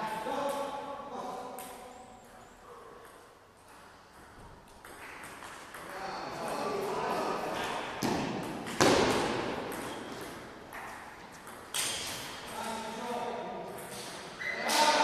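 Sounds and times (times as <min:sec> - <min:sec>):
table tennis ball hits: 0:08.0 - 0:12.6.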